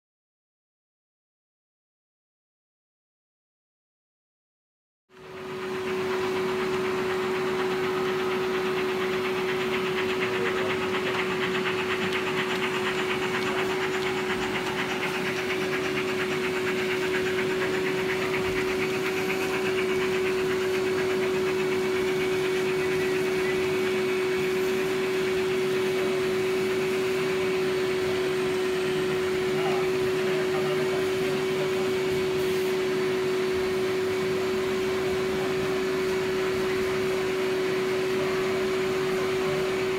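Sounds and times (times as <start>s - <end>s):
model locomotive humming and rattling: 5.2s - 39.9s.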